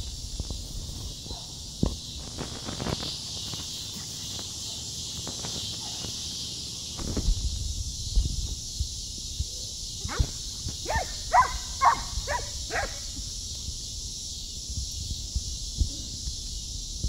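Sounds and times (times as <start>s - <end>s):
dogs yipping and barking: 10.0s - 13.1s.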